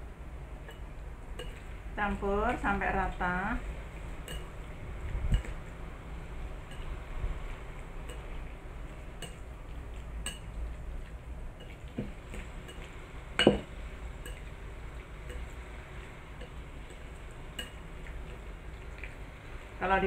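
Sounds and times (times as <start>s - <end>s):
chopsticks stirring in ceramic bowl: 0.6s - 2.7s, 6.5s - 19.6s
knock on bowl: 13.4s - 13.7s.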